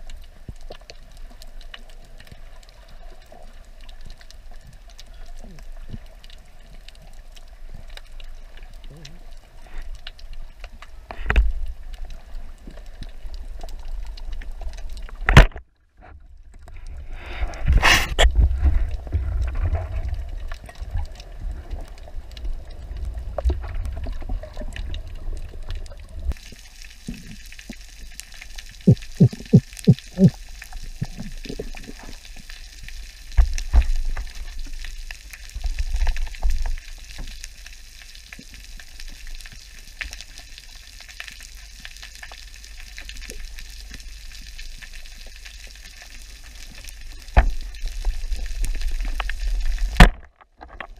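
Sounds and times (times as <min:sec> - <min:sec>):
bubbling water: 0:16.4 - 0:37.6
underwater hiss: 0:26.4 - 0:33.1.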